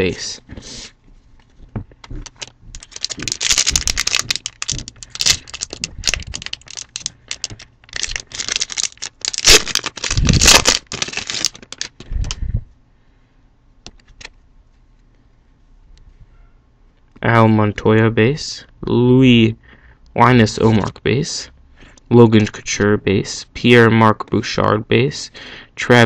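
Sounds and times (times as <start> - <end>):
foil wrapper crinkling and tearing: 2.0 - 12.1.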